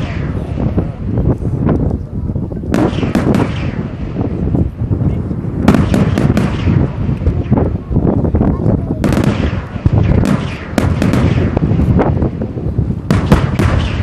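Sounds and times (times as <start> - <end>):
low rumble of booms: 0.0 - 14.0
sharp cracking reports: 2.7 - 4.3, 5.7 - 7.8, 8.5 - 12.3, 13.1 - 14.0
firework shells bursting: 2.7 - 4.8, 5.6 - 7.7, 9.0 - 14.0.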